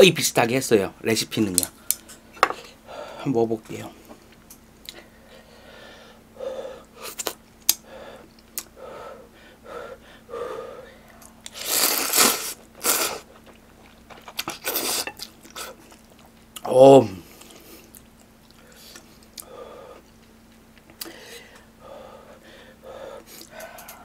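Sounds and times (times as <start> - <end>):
chewing: 11.1 - 16.7, 17.3 - 19.5
person slurping noodles: 11.5 - 13.5.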